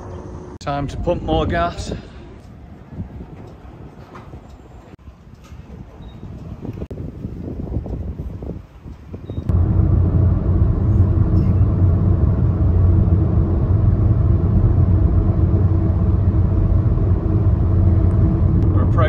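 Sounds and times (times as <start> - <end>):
car driving low rumble: 5.8 - 19.0.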